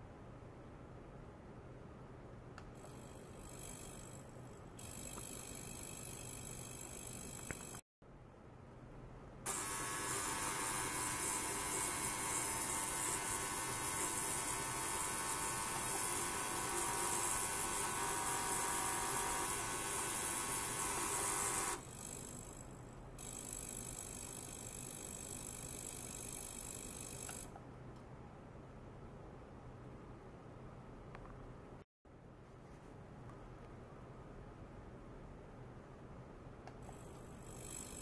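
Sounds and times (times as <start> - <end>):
steady tones: 9.5 - 21.8
ultrasonic cleaner hissing: 9.5 - 21.8.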